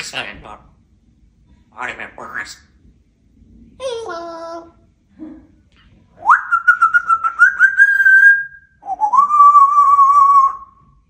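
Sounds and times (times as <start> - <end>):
parrot whistling: 6.2 - 10.8.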